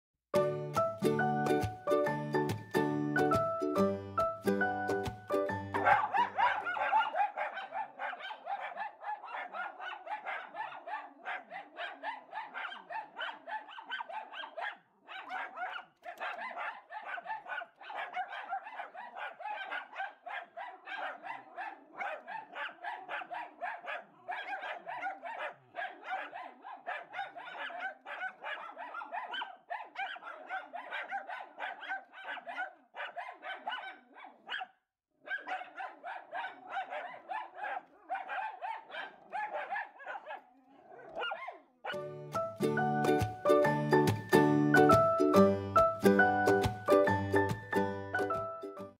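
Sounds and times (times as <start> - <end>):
dogs barking rapidly: 5.8 - 42.0.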